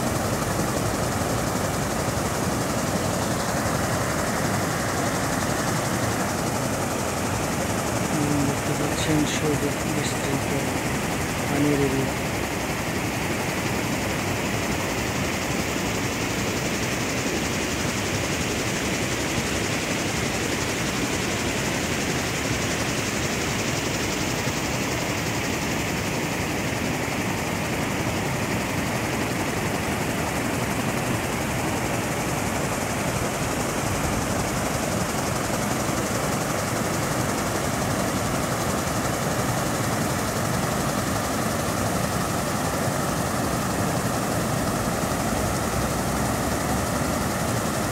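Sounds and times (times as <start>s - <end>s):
water rushing over cascade wall: 0.0s - 9.0s, 28.8s - 47.9s.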